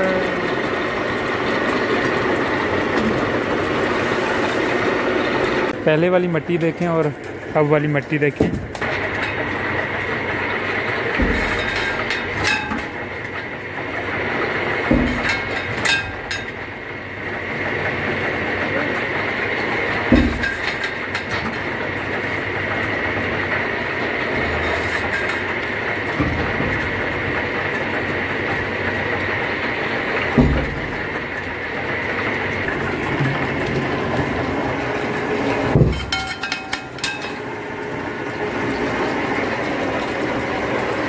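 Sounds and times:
tractor engine running: 0:00.0 - 0:41.0
heavy knocks: 0:08.3 - 0:10.0, 0:10.8 - 0:14.0, 0:14.8 - 0:16.6, 0:20.0 - 0:21.7, 0:24.3 - 0:29.2, 0:30.2 - 0:37.4.

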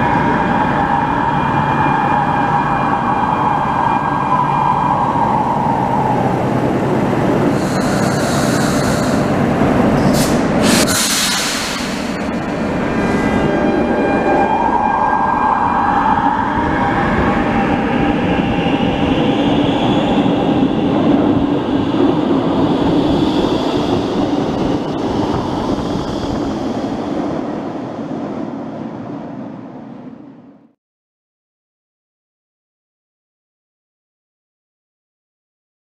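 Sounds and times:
train air hiss: 0:07.5 - 0:09.4, 0:10.0 - 0:12.3.

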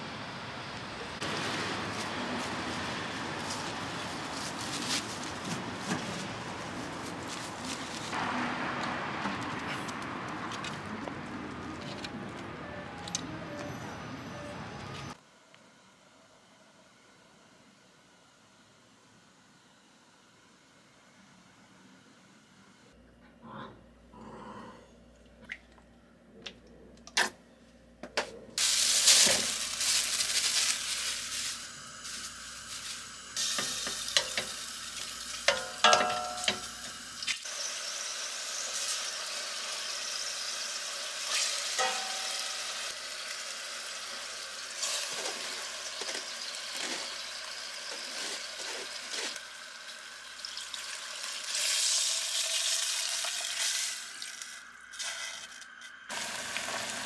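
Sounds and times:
meat sizzling in a pot: 0:28.6 - 0:57.0.

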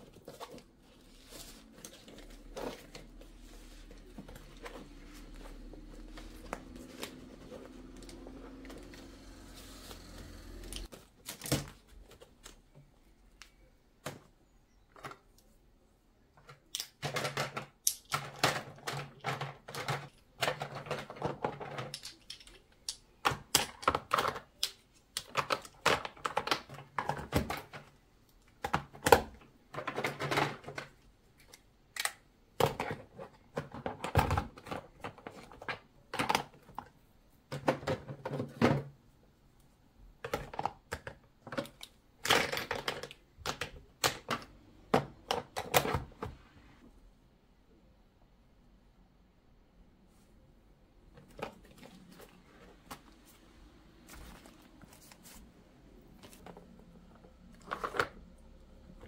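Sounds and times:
makeup items clicking and knocking: 0:16.4 - 0:38.8, 0:40.2 - 0:46.3, 0:56.1 - 0:59.0.

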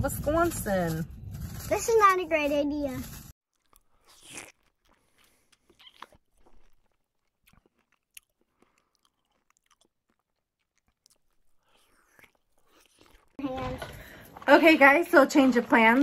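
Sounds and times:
crunchy food being chewed: 0:03.5 - 0:14.7.

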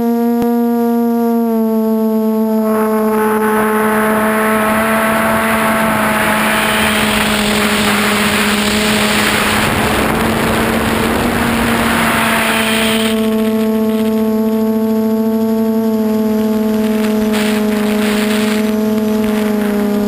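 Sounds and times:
drone motors buzzing: 0:00.0 - 0:20.0
rushing wind: 0:02.6 - 0:14.2, 0:15.9 - 0:20.0.

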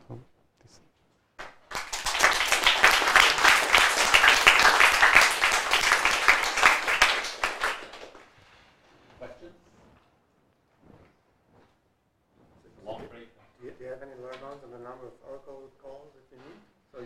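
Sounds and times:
audience applauding: 0:01.4 - 0:08.4.

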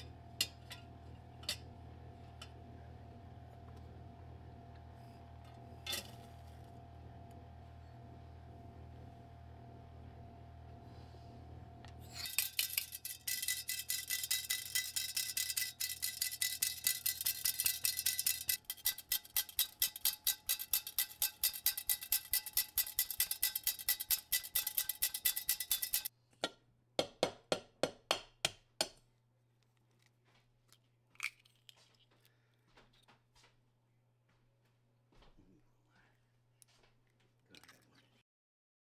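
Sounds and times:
metal sieve tapping over bowl: 0:12.2 - 0:26.1.

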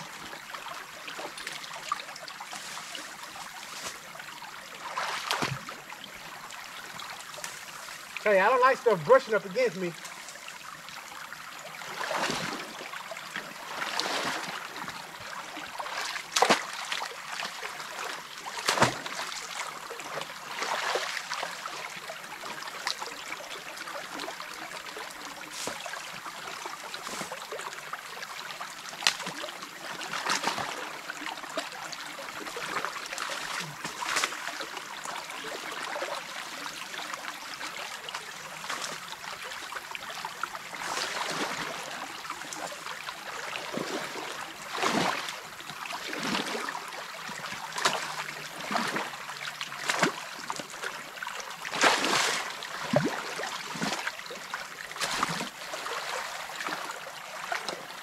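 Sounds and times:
creek water trickling: 0:00.0 - 0:58.0
splashes and knocks: 0:04.9 - 0:05.8, 0:12.0 - 0:12.7, 0:15.8 - 0:17.7, 0:18.5 - 0:21.3, 0:29.0 - 0:29.4, 0:30.1 - 0:30.8, 0:32.6 - 0:34.5, 0:43.7 - 0:45.4, 0:47.4 - 0:49.1, 0:49.8 - 0:50.7, 0:51.7 - 0:54.1, 0:55.0 - 0:56.2.

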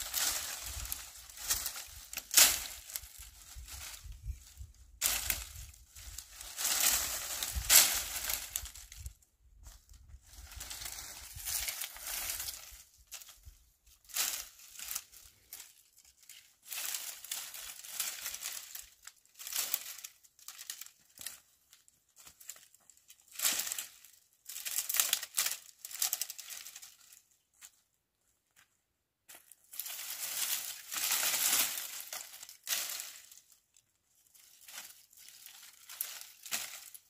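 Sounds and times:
dry branches rustling and crackling: 0:00.0 - 0:27.8, 0:29.3 - 0:37.0.

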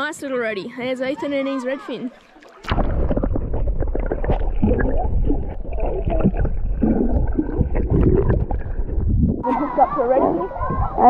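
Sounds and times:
muffled underwater sloshing and gurgling: 0:02.1 - 0:11.0.

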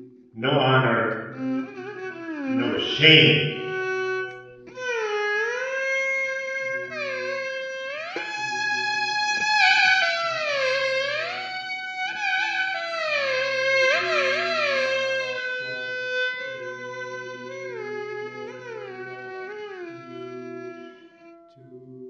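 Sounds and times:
sliding melody: 0:00.4 - 0:12.3.

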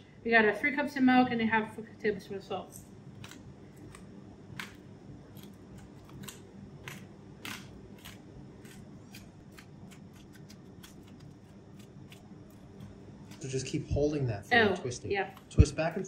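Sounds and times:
salt grinder crunching: 0:04.6 - 0:13.8.

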